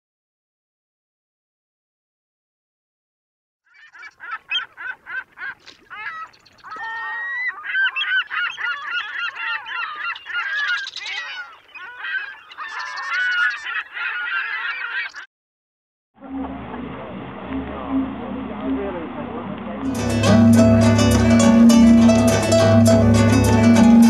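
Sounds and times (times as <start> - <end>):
flock of birds calling: 3.7 - 15.3.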